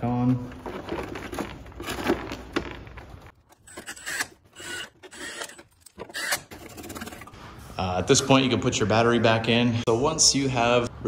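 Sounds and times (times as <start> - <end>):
plastic parts rubbing and clicking: 0.6 - 7.4.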